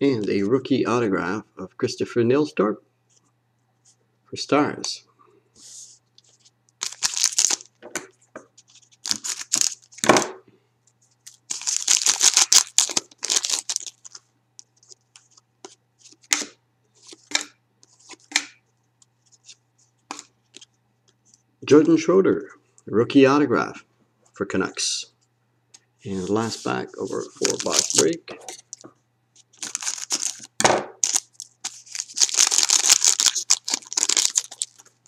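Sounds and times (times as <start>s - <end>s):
cards rustling in hands: 6.2s - 7.7s, 8.6s - 10.0s, 11.1s - 18.4s, 19.0s - 21.4s, 26.1s - 35.0s
foil wrapper tearing and crinkling: 6.8s - 7.7s, 8.7s - 10.0s, 11.2s - 14.2s, 27.2s - 28.8s, 29.4s - 35.0s.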